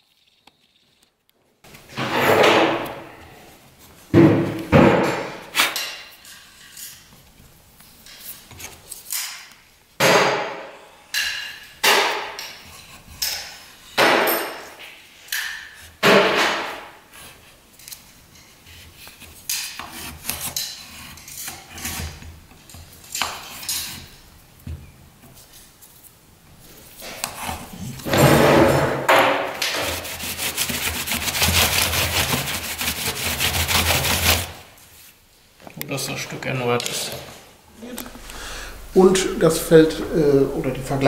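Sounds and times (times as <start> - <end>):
rubbing sound: 29.6 - 35.2.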